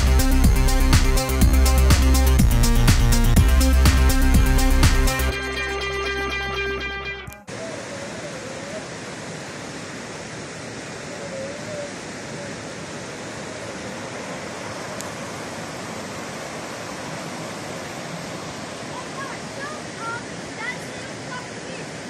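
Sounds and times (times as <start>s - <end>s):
stream rushing over rocks: 7.5s - 22.0s.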